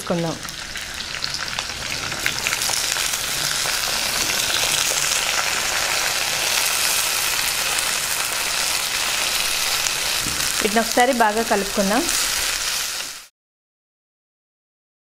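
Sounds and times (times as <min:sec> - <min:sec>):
hot oil sizzling: 0:00.0 - 0:13.3.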